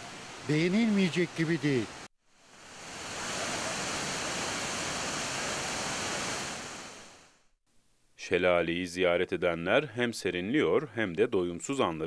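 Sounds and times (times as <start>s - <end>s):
waterfall rushing: 0.0s - 7.2s.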